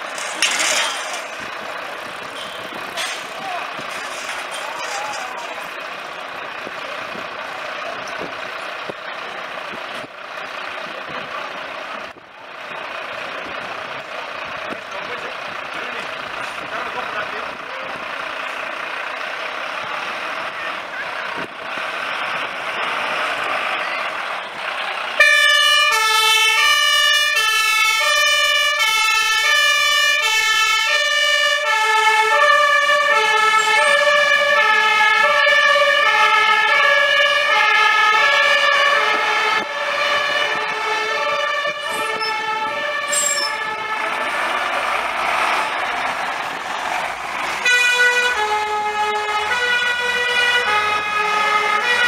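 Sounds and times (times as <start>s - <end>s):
diesel truck engines: 0.0s - 52.0s
two-tone siren: 25.2s - 44.3s, 47.6s - 52.0s.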